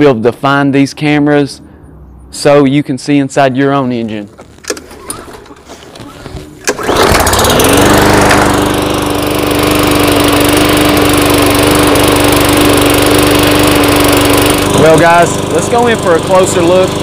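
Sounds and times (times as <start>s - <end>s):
lawn mower engine starting and running: 4.3s - 17.0s.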